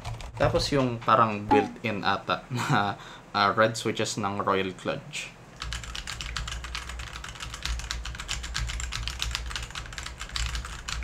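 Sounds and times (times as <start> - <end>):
mechanical keyboard typing: 5.6 - 11.0.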